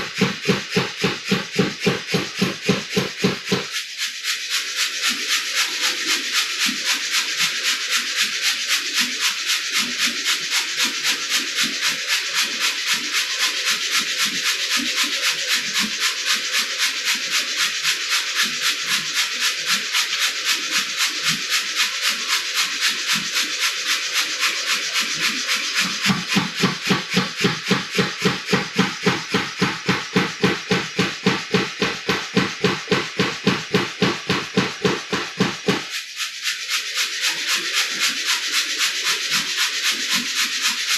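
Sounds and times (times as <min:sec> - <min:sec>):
power hammer blows on steel: 0:00.0 - 0:03.7, 0:26.1 - 0:35.9.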